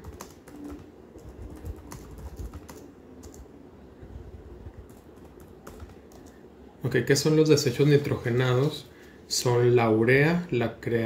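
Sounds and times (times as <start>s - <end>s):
computer keyboard clicking: 0.0s - 3.4s, 4.9s - 6.4s.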